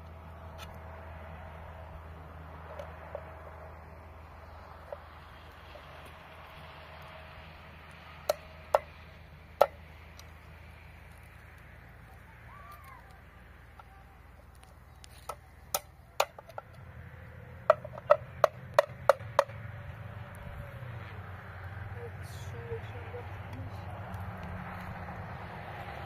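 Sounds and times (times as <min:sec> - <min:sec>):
hatchet striking tin can: 0:17.7 - 0:19.6.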